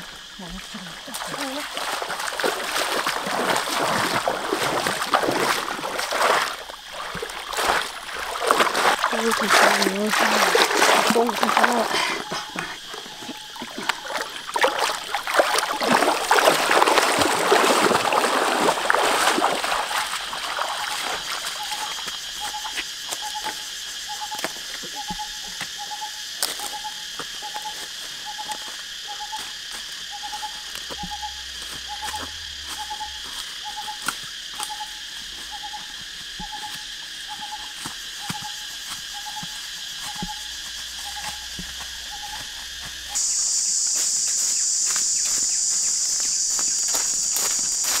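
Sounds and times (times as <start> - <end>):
water splashing from wading: 0.0 - 22.2
insect drone: 0.0 - 48.0.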